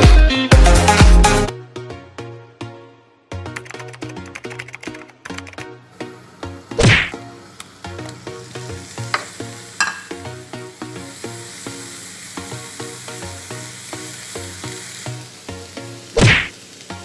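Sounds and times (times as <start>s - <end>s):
tomato slices sizzling in a pan: 5.9s - 17.0s.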